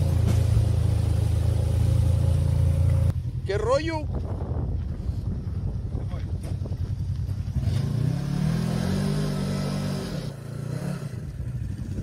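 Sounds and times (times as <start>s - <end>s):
engine revving: 7.4s - 12.0s.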